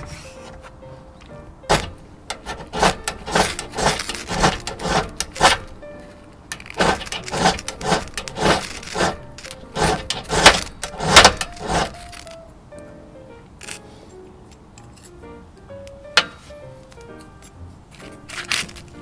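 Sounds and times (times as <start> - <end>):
striker scraping ferro rod: 1.7 - 12.4.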